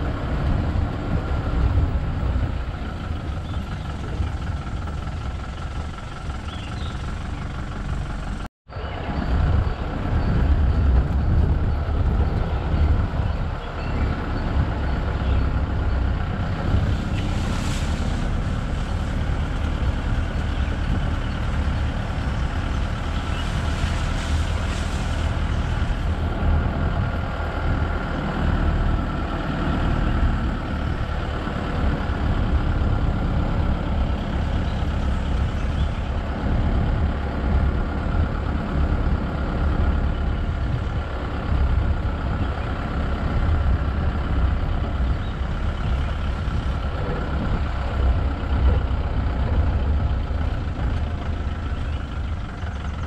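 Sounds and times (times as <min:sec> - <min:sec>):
vehicle engine rumbling: 0:00.0 - 0:53.0.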